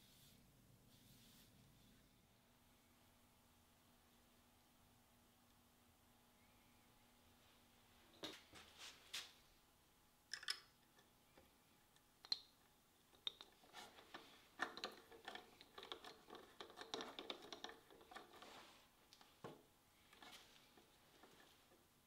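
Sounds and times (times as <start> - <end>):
small scratches: 0.0 - 2.0, 13.5 - 18.9, 20.0 - 21.8
small clicks and taps: 10.3 - 18.4.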